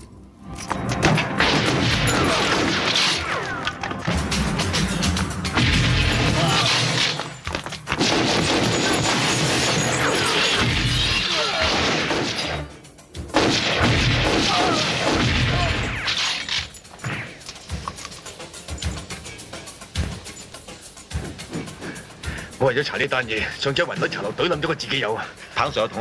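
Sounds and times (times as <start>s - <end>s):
soundtrack music: 0.0s - 9.0s
booms and crashing impacts: 0.9s - 3.4s, 4.1s - 12.6s, 13.3s - 16.2s
rapid gunfire: 8.0s - 12.6s, 13.3s - 16.4s.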